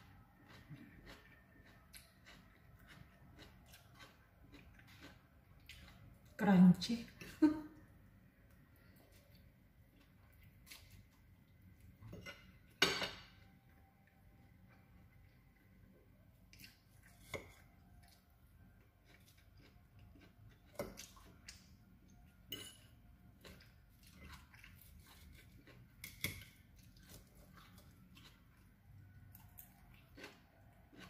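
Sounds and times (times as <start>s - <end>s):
soft chewing of crunchy salad: 0.0s - 31.0s
fork clinking and scraping in bowl: 22.5s - 23.0s.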